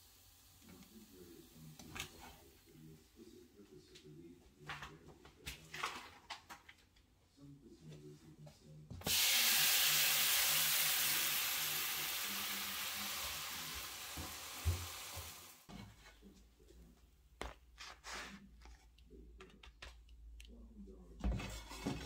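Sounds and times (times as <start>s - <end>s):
flatbread sizzling in hot oil: 9.1s - 15.6s.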